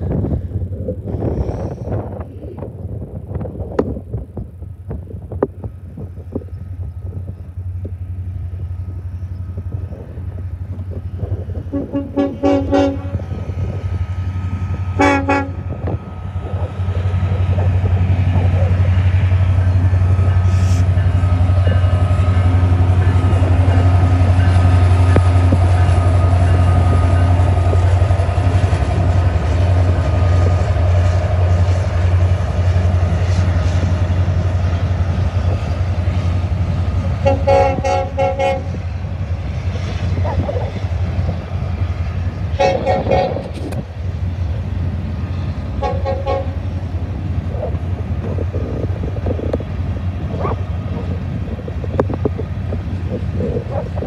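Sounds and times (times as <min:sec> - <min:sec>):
diesel locomotive engines droning: 0:00.0 - 0:54.0
train horn: 0:11.7 - 0:13.4, 0:14.9 - 0:15.9, 0:37.2 - 0:38.8, 0:42.5 - 0:43.6, 0:45.8 - 0:46.6.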